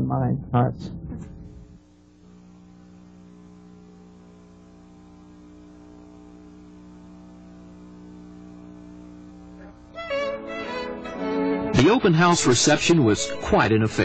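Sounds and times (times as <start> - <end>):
low hum of held tones: 0.0 - 10.7.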